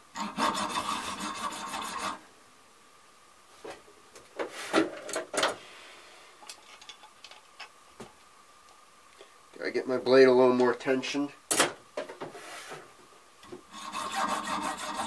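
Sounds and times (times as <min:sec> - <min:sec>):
hand saw rasping through metal: 0:00.2 - 0:02.2, 0:13.7 - 0:15.0.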